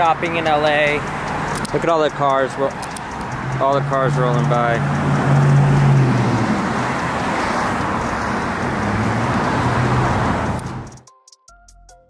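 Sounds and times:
cars driving past: 0.0 - 11.0
deep engine hum: 2.6 - 11.0.

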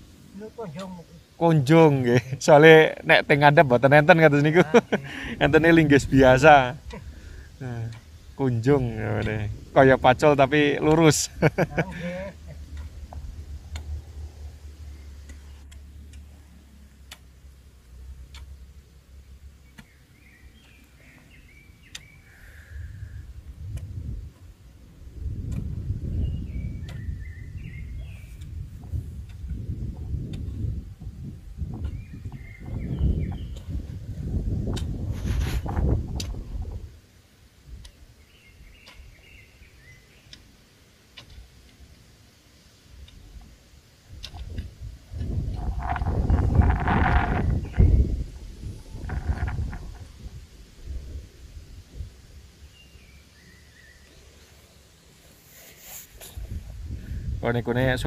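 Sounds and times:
low wind rumble: 0.0 - 40.2, 41.3 - 55.2, 56.1 - 58.0
hoe striking hard soil: 8.8 - 9.5
faint bird chirping: 19.5 - 23.4, 26.1 - 28.6, 31.8 - 33.8, 38.1 - 40.4, 52.5 - 57.0.

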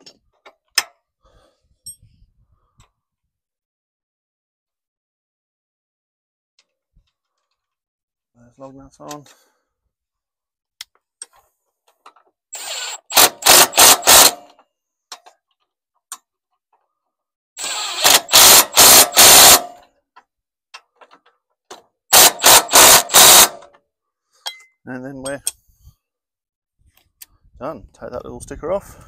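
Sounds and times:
impact wrench hammering: 18.0 - 19.8, 22.2 - 23.7.

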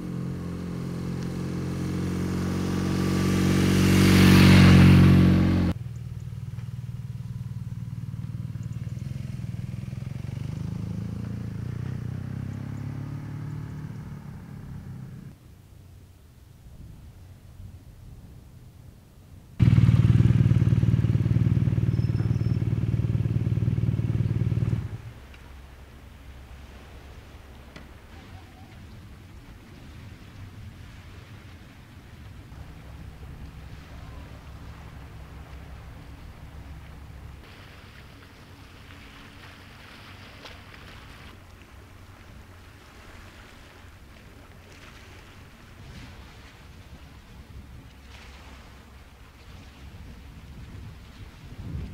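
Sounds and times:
motorcycle engine running: 0.0 - 15.3, 19.6 - 25.2
hiss of wind or water: 14.1 - 51.9
low engine drone: 19.6 - 27.4, 32.2 - 44.5
wind noise: 45.0 - 51.9.

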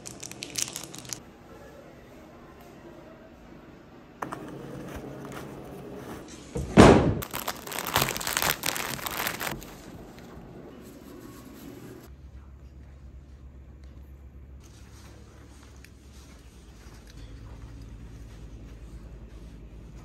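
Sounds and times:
wrapper crinkling and tearing: 0.0 - 1.2, 7.2 - 9.9
thump: 6.6 - 7.2.

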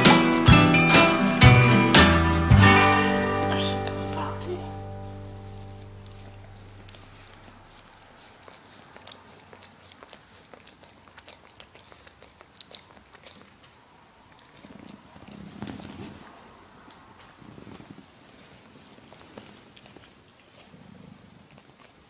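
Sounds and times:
dog licking cushion: 0.0 - 22.0
low rustling noise: 2.3 - 8.8, 14.7 - 20.0.

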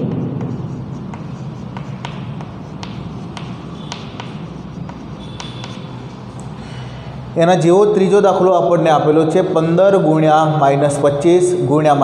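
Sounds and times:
chalk tapping and scraping on board: 0.0 - 6.7.

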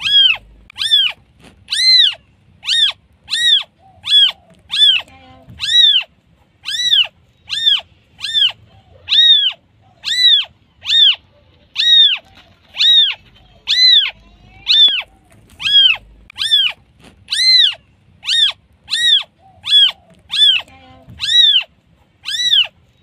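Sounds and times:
kitten mewing: 0.0 - 22.8.

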